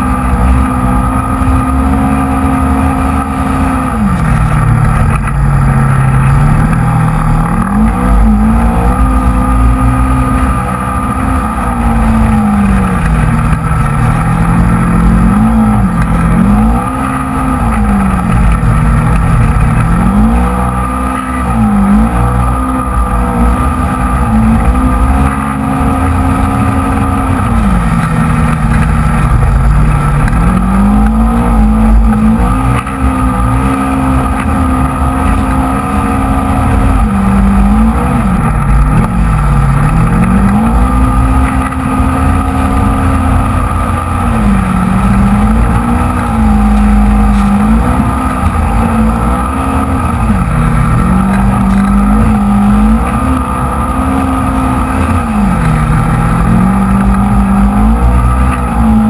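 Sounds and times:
off-road vehicle engine revving: 0.0 - 59.0.

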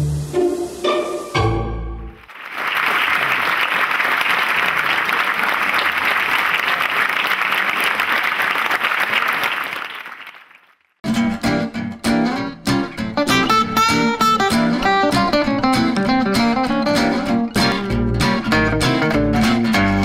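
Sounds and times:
audience applauding: 2.2 - 10.9
plucked acoustic guitar music: 11.0 - 20.0.

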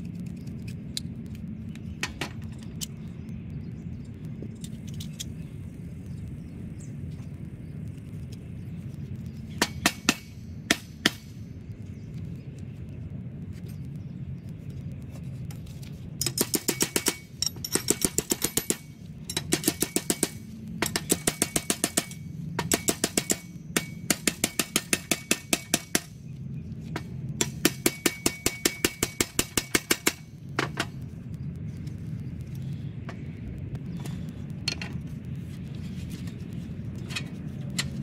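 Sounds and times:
hammer tapping metal: 9.6 - 11.4, 16.2 - 26.2, 27.4 - 30.9.

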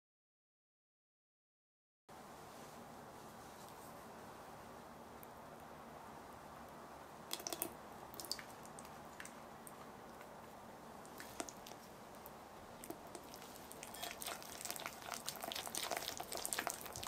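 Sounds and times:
batter stirred with spatula: 11.1 - 17.0.

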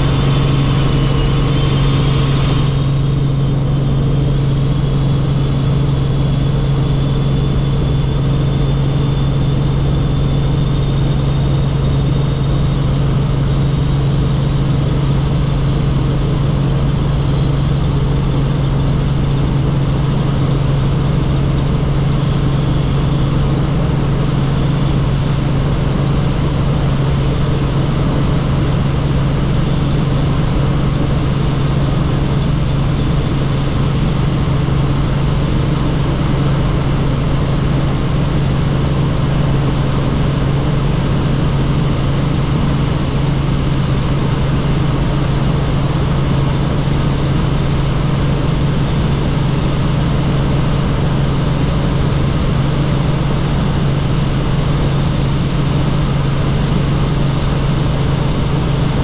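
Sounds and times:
faint high whine: 0.0 - 59.0
helicopter drone: 0.0 - 59.0.

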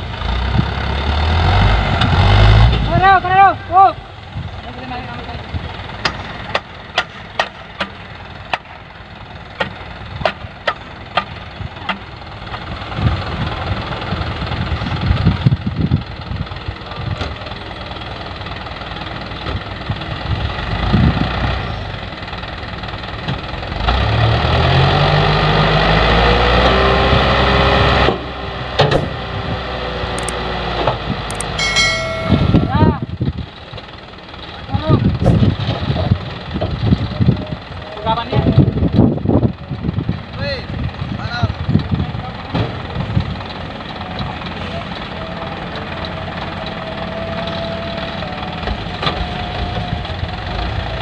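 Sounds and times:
diesel engine idling and revving: 0.0 - 51.0.

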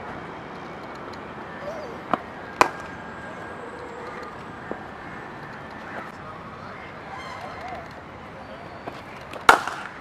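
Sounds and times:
cricket bat hitting ball: 2.1 - 2.9, 9.3 - 10.0.

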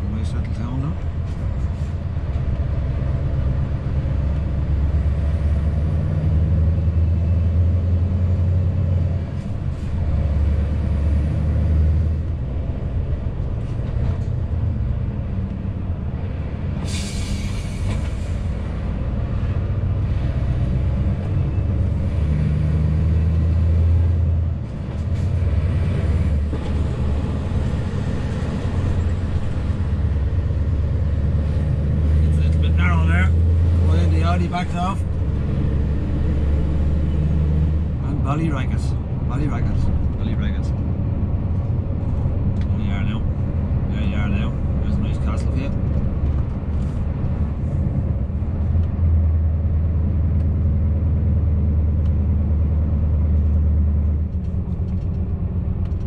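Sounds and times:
diesel truck engine: 0.0 - 56.0.

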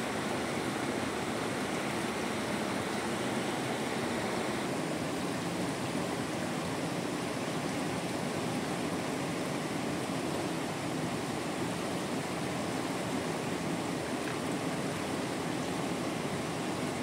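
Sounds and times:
heavy rain: 0.0 - 7.2.

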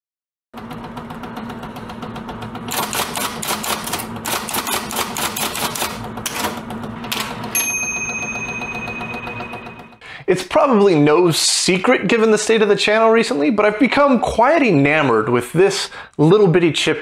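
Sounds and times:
typewriter keys clacking: 2.7 - 7.4.

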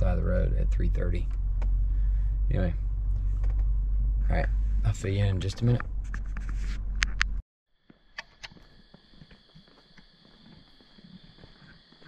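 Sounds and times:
car rumble inside cabin: 0.0 - 7.4
night insects trilling: 7.8 - 12.0.

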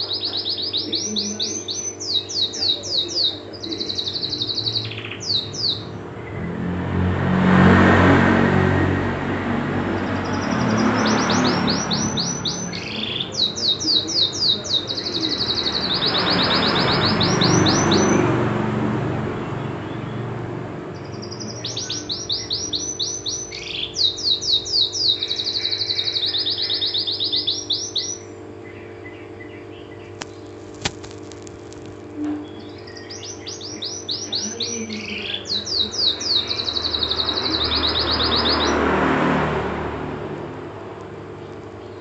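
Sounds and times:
canary singing in trills: 0.0 - 42.0
loud rushing noise: 6.0 - 12.6, 15.5 - 21.0, 36.8 - 41.4.

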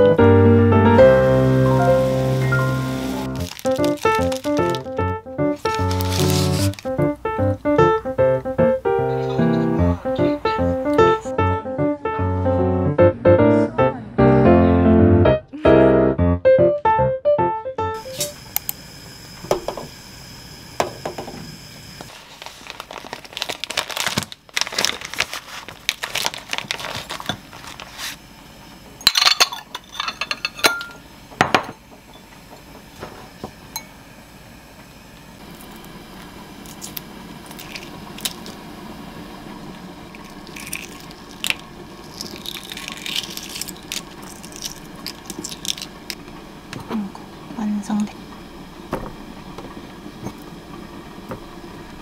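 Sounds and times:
steady low hum: 0.0 - 17.1, 25.4 - 52.0
eggshells cracking: 3.3 - 7.3, 22.5 - 27.9, 36.6 - 38.6, 40.1 - 46.4
pots and dishes clinking: 29.0 - 32.7.

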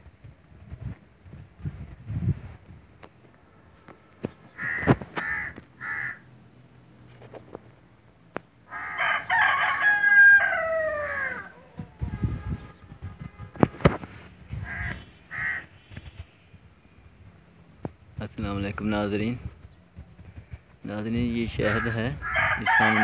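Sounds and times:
rooster crowing: 8.7 - 12.1, 22.2 - 23.0
short bird calls: 14.5 - 17.0.

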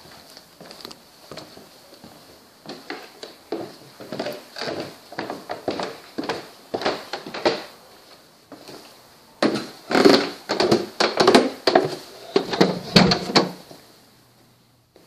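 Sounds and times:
wooden knocks and thumps: 10.5 - 13.6
door being handled: 12.4 - 13.6.

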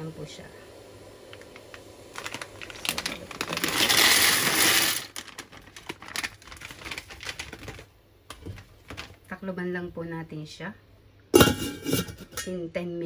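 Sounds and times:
dry pasta rattling into pot: 1.5 - 9.2.

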